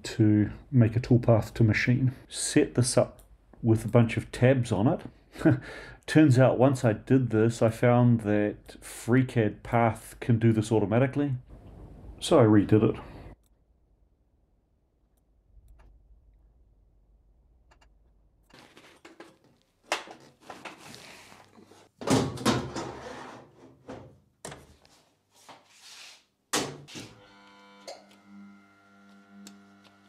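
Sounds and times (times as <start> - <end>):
sliding metal door thunks: 22.0 - 23.1
machine hum with clear tone: 27.2 - 30.0.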